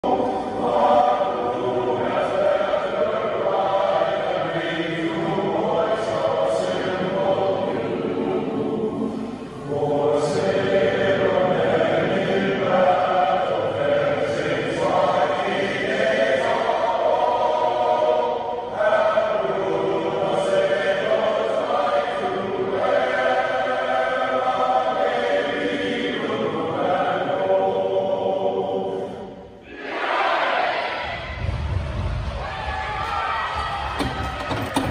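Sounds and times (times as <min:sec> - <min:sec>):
crowd singing: 0:00.0 - 0:34.9
crowd cheering and shouting: 0:29.7 - 0:34.9.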